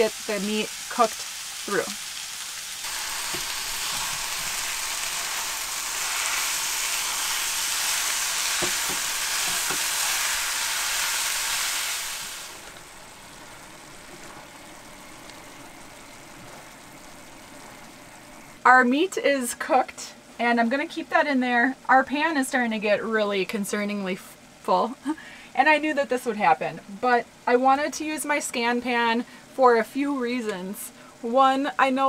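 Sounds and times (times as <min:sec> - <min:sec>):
meat sizzling in a skillet: 0:00.0 - 0:18.6
spatula stirring meat: 0:02.9 - 0:11.8
spatula knocking pan: 0:08.4 - 0:10.1.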